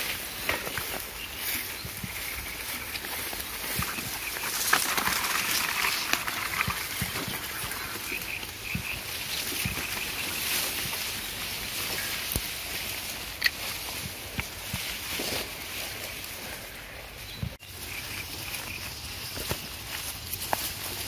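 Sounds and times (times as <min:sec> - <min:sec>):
reeds rustling against bicycle: 0:00.0 - 0:21.0.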